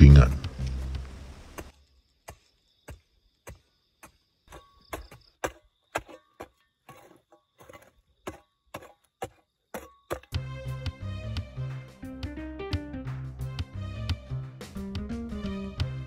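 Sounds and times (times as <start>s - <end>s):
music: 0.0s - 1.2s, 10.4s - 16.0s
faint insect chirr: 0.0s - 10.4s
hoe chopping into dry soil: 0.8s - 10.5s.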